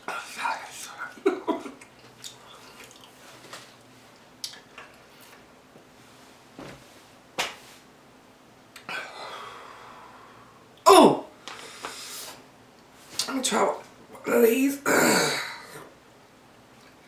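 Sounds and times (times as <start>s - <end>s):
wet chewing clicks: 1.8s - 3.2s.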